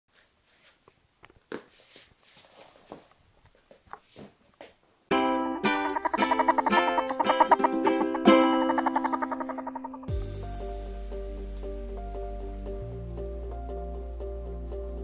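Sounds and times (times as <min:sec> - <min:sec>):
plucked guitar-like music: 0:05.1 - 0:15.0.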